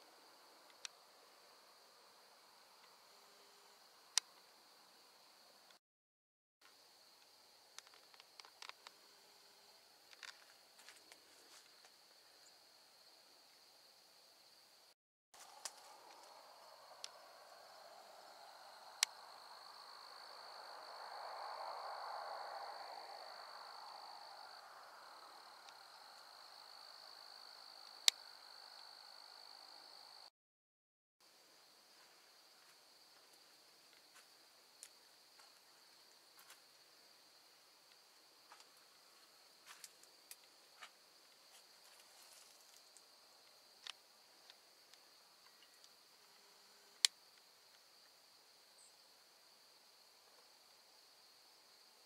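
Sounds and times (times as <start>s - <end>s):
high-pitched insect trill: 15.4s - 30.3s, 32.5s - 50.2s.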